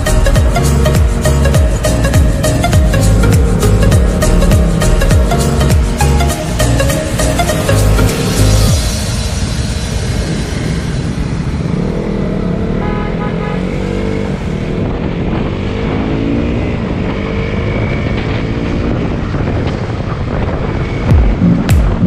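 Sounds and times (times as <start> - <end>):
motorcycle engine running: 0.0 - 22.0
wind on microphone: 14.3 - 22.0.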